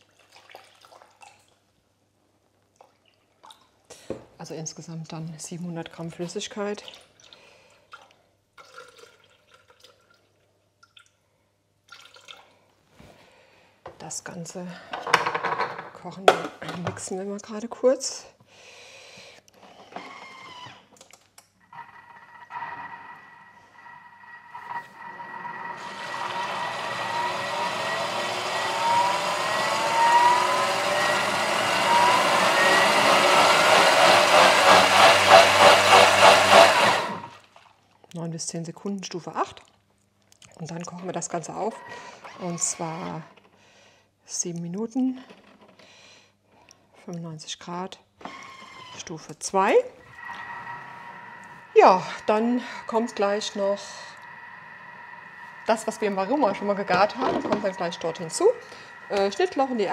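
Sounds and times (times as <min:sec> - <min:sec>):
milk trickling and splashing: 0:00.0 - 0:01.7, 0:06.7 - 0:11.2, 0:11.9 - 0:12.7
food processor motor blending liquid: 0:21.7 - 0:37.4, 0:41.9 - 0:43.2, 0:50.1 - 0:59.9.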